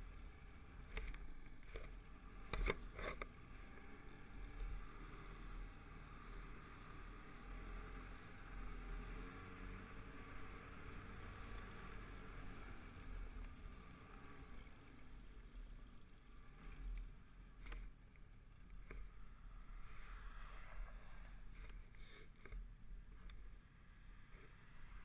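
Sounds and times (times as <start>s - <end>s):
track and wind hiss: 18.6s - 25.0s.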